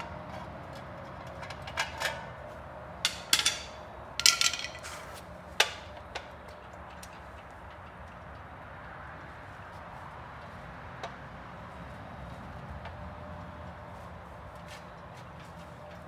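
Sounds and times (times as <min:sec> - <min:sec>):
metal tools clinking on engine: 0:03.0 - 0:08.1.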